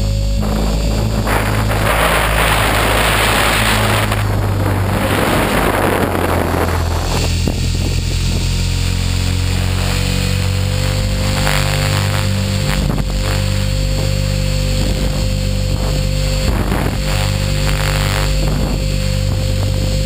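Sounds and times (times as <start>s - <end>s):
helicopter motor and rotor drone: 0.0s - 20.0s
wind rushing over microphone: 0.0s - 20.0s.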